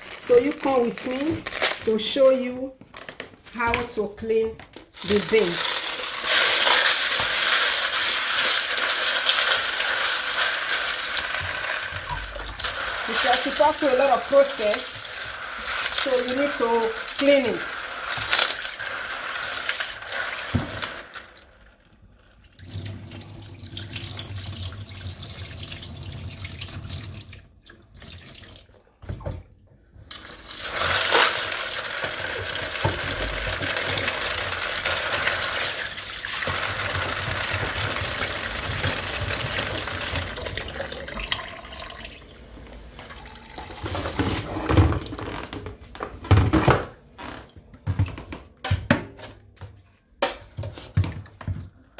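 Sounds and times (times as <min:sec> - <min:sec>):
beans washed by hand: 0:04.9 - 0:27.3, 0:30.0 - 0:45.5
tap water running into bowl: 0:30.1 - 0:45.0.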